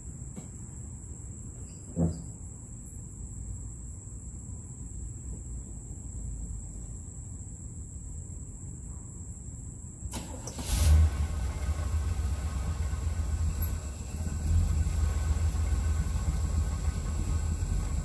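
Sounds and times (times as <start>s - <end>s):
truck engine starting and idling: 10.1s - 18.0s.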